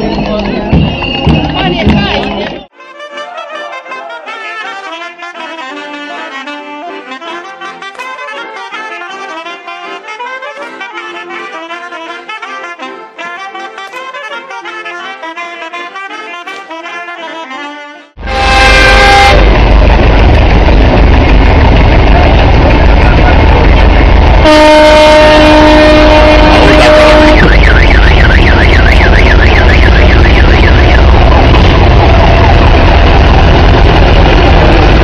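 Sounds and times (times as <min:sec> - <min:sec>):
brass band folk dance music: 0:00.0 - 0:19.4, 0:24.3 - 0:32.8
horn blast: 0:02.8 - 0:35.0
tractor engines rumbling: 0:18.2 - 0:35.0.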